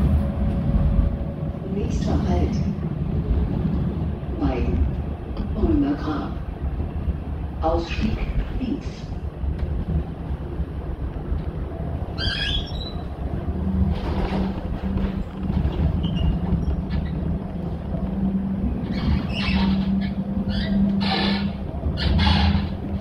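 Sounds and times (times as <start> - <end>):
high squeak: 12.2 - 13.0, 18.9 - 22.8.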